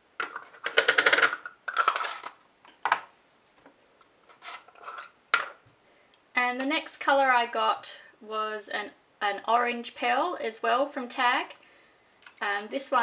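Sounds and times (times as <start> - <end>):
plastic pots clicking and scraping: 0.2 - 3.7, 4.3 - 5.6.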